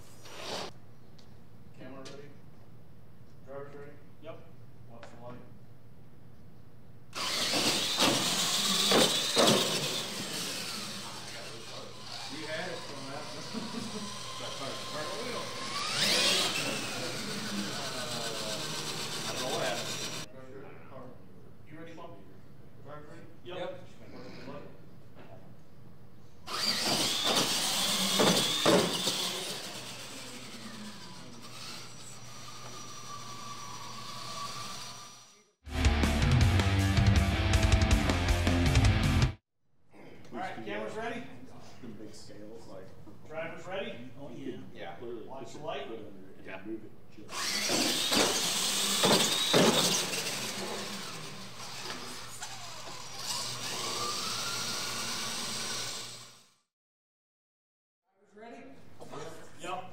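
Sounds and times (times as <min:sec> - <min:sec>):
rc truck motor whine: 0:07.1 - 0:20.3, 0:26.5 - 0:35.6, 0:47.3 - 0:56.7
sharp thumps on ramps: 0:07.4 - 0:09.9, 0:26.7 - 0:29.2, 0:47.6 - 0:50.1.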